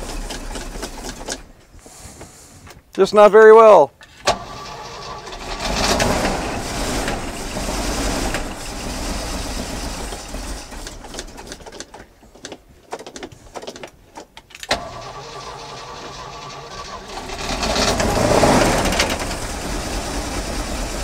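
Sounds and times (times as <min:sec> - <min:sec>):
engine running rough: 0:00.0 - 0:01.6, 0:04.3 - 0:11.7, 0:14.8 - 0:21.0.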